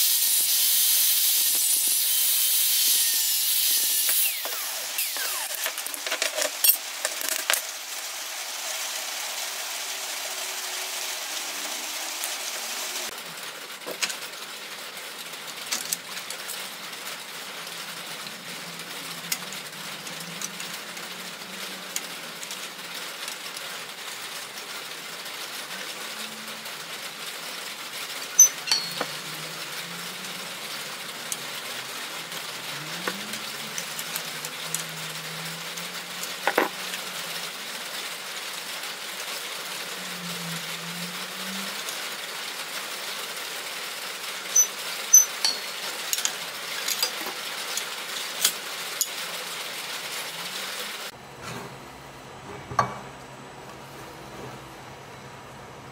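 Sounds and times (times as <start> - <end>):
tin snips clipping metal sheet: 28.4 - 29.2.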